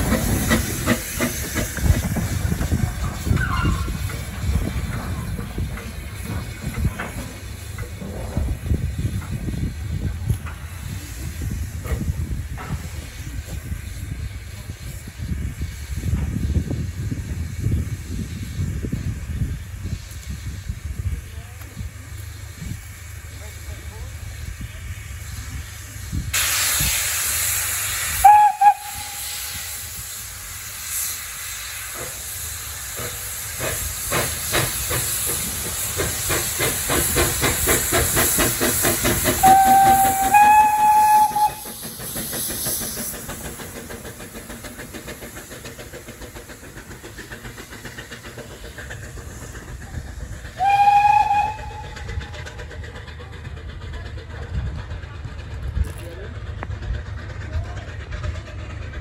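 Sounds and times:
steam engine chuffing: 0:00.0 - 0:59.0
steam engine hissing: 0:00.0 - 0:59.0
steam whistle blasts: 0:28.1 - 0:29.7, 0:39.4 - 0:41.8, 0:50.6 - 0:52.1.

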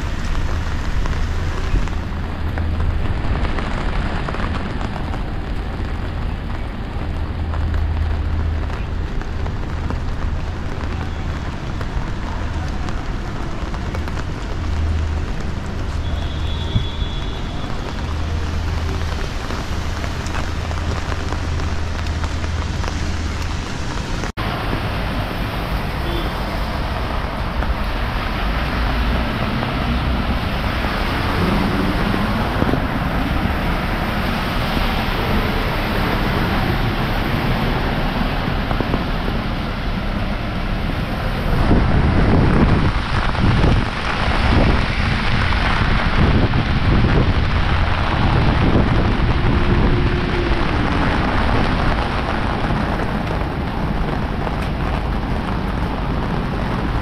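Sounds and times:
heavy rain pouring: 0:00.0 - 0:57.0
wind buffeting microphone: 0:26.6 - 0:57.0.

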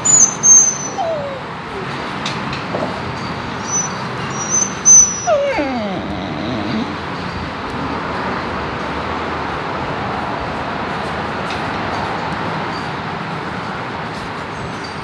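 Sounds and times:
dog whimpering: 0:00.0 - 0:02.2, 0:03.6 - 0:07.2.

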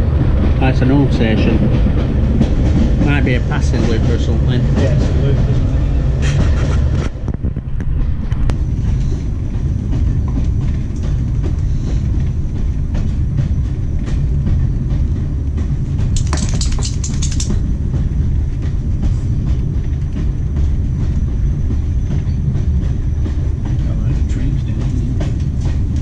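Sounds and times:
train clatter: 0:00.0 - 0:26.0
train wheels rumbling on rail: 0:00.0 - 0:26.0
light clicks of train wheels: 0:08.3 - 0:26.0.

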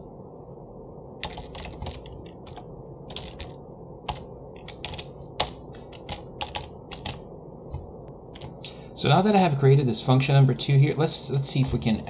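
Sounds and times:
keyboard typing clicks: 0:01.2 - 0:08.7.

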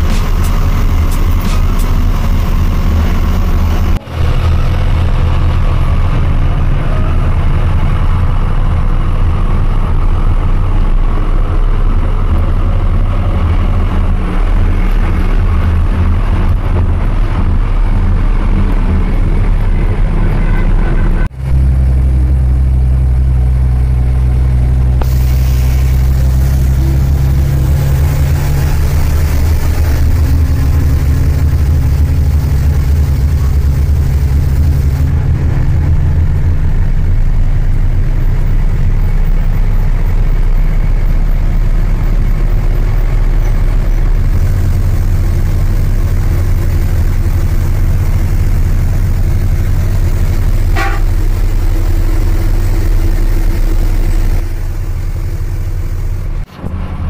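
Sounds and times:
diesel truck engine drone: 0:00.0 - 0:57.0
road noise: 0:00.0 - 0:57.0.

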